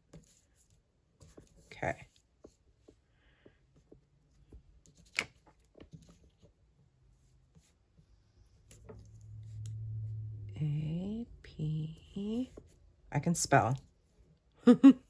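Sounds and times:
low steady hum: 6.0s - 15.0s.

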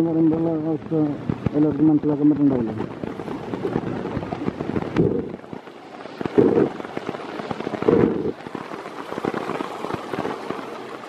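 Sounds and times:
water patter with surges: 0.0s - 11.0s.

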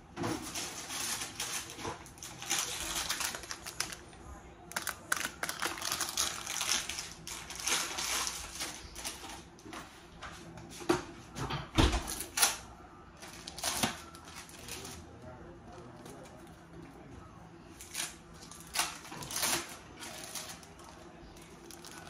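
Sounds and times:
plastic wrapping crinkling: 0.4s - 9.7s, 13.2s - 15.0s, 17.8s - 22.0s.

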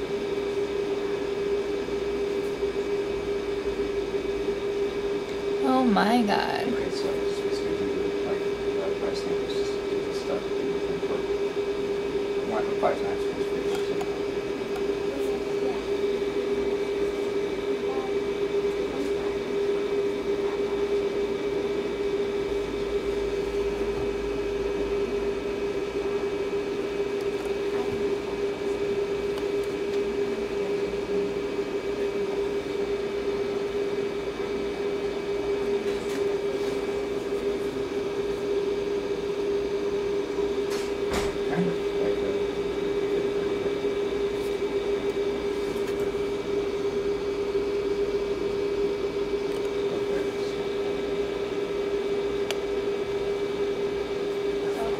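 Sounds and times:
steady machine hum: 0.0s - 54.9s.

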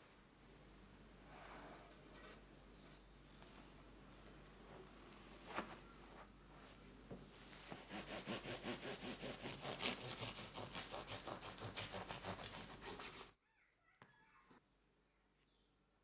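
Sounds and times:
bread knife sawing through crust: 7.8s - 13.3s.

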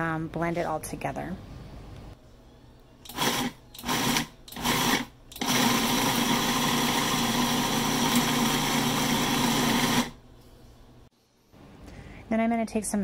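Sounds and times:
food processor motor: 3.1s - 10.2s.

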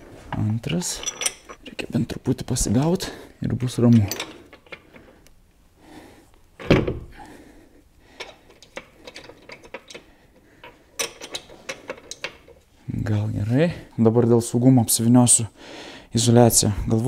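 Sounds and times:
metallic clicks and clinks: 0.7s - 1.7s.

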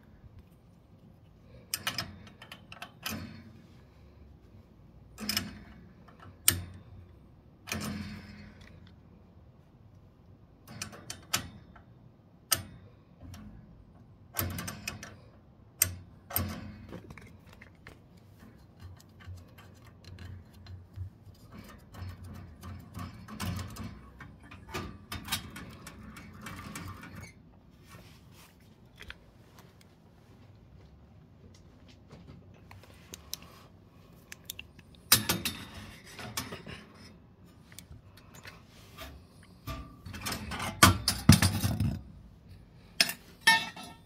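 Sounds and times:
sharp metal clicks and knocks: 1.4s - 3.6s, 5.1s - 9.0s, 10.6s - 27.4s, 34.3s - 42.1s.

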